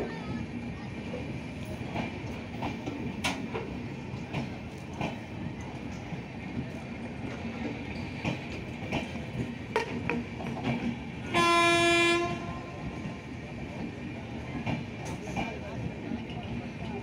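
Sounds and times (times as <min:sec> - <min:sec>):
train rumble: 0:00.0 - 0:17.0
train wheels clacking on rails: 0:00.0 - 0:17.0
train horn: 0:11.2 - 0:12.8.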